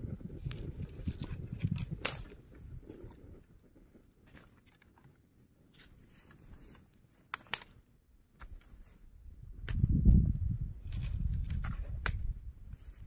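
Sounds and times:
campfire crackling and popping: 0.0s - 13.0s.

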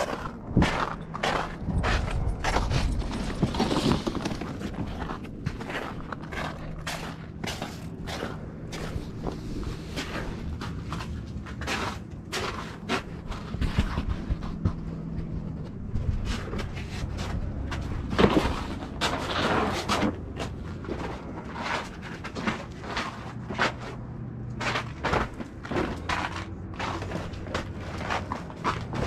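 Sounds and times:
gear knocking and rustling: 0.0s - 29.0s
steady low hum: 0.0s - 29.0s.

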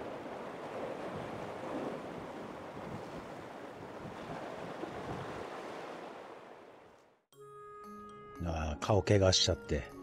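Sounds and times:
wind buffeting microphone: 0.0s - 5.6s.

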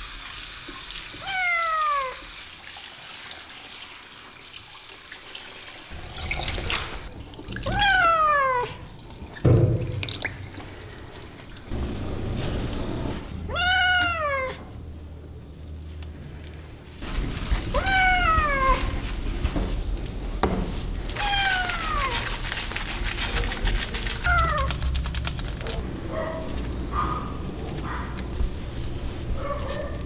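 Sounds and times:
cat meowing: 1.2s - 2.2s, 7.7s - 8.8s, 13.5s - 14.7s, 17.7s - 18.9s, 21.2s - 22.2s, 24.2s - 24.8s.

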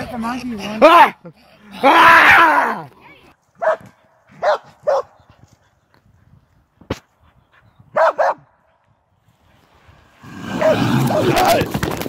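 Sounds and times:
dog barking: 3.6s - 5.2s, 7.9s - 8.5s, 10.6s - 10.8s.

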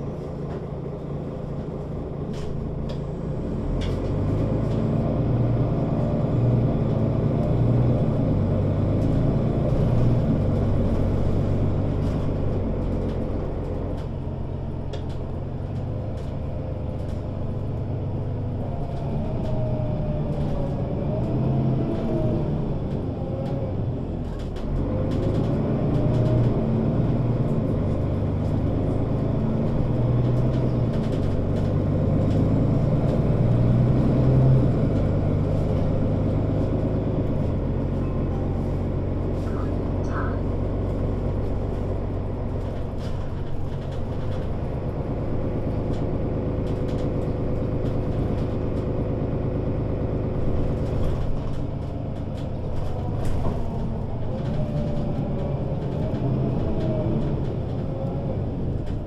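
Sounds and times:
bus diesel engine running: 0.0s - 59.0s.

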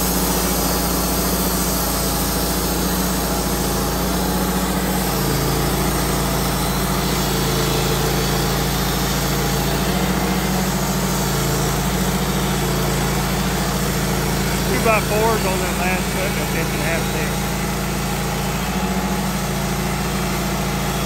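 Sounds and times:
gasoline engine running: 0.0s - 21.0s.

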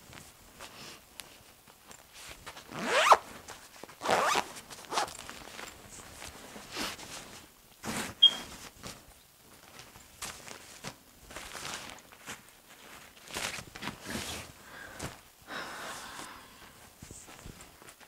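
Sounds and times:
fabric rustling: 0.0s - 15.3s
zipper zipping: 2.7s - 3.2s, 4.0s - 5.2s.

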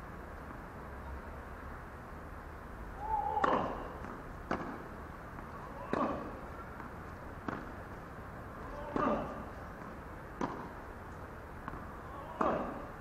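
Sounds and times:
tennis ball hits and bounces: 3.3s - 12.9s.

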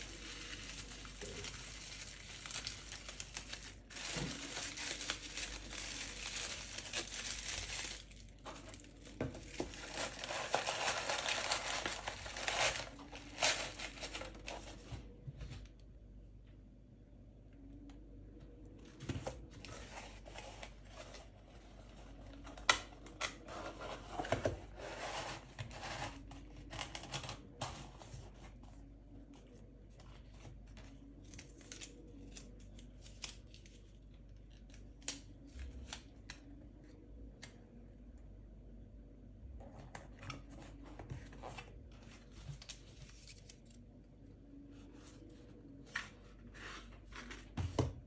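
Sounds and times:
paper rustling: 0.0s - 15.2s.

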